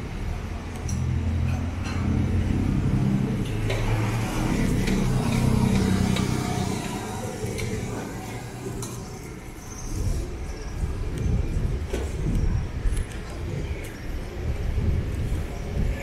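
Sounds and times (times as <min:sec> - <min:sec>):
vehicle engine passing by: 0:01.0 - 0:09.6.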